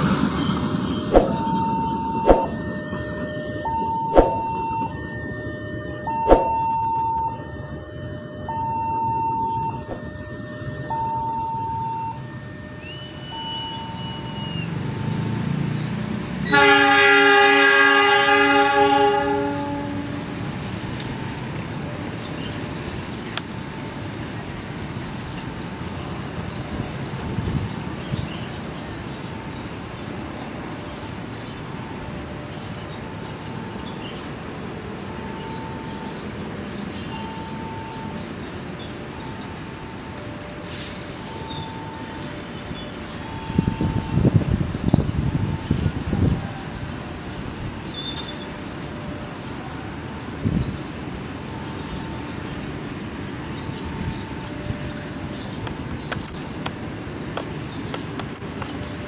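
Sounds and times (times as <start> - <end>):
passing train rumble: 0.0 - 59.0
level crossing warning beeps: 0.5 - 15.4, 30.6 - 56.4
locomotive horn blast: 16.4 - 20.4.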